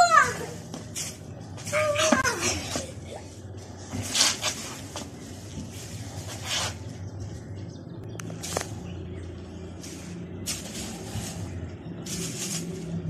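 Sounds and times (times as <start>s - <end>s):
plastic bag rustling: 9.8s - 13.0s.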